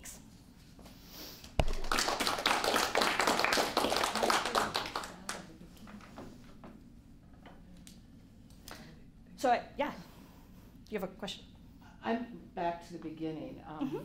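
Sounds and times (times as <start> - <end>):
small audience applauding: 1.6 - 6.1.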